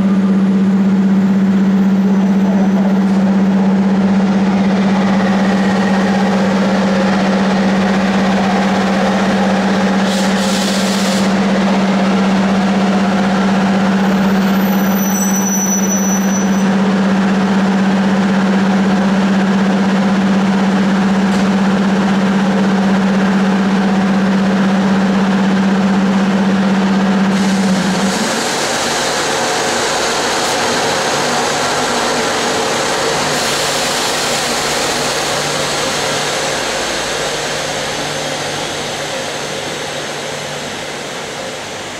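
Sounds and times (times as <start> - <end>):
locomotive air compressor humming: 0.0 - 14.4, 27.2 - 41.9.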